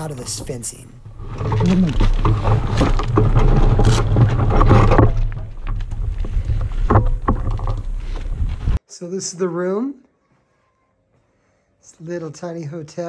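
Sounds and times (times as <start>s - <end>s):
metallic clatter and knocks: 0.3s - 8.5s.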